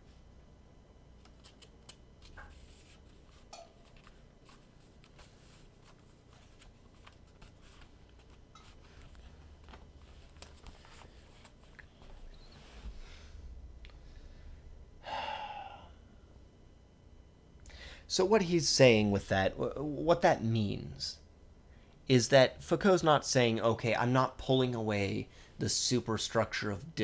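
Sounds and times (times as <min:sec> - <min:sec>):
book pages being leafed through: 0:01.2 - 0:12.2.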